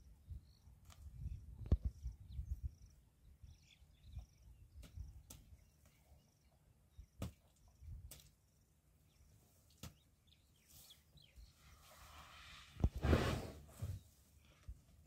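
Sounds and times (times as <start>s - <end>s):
wind rumble on microphone: 0.0s - 5.2s.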